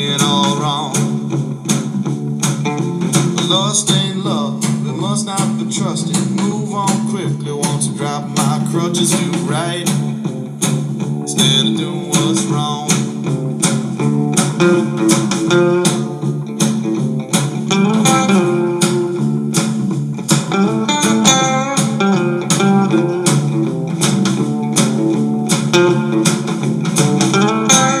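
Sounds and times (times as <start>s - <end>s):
blues guitars: 0.0s - 28.0s
steady drum beat: 0.0s - 28.0s.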